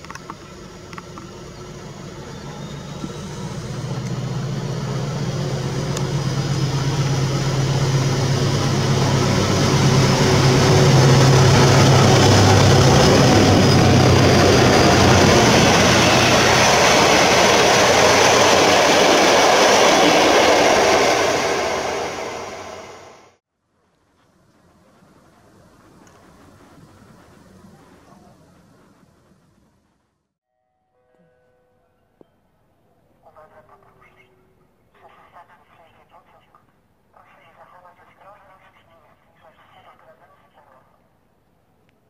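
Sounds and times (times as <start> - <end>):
diesel locomotive engine drone: 0.0 - 30.3
train wheels rumbling on rails: 0.0 - 30.3.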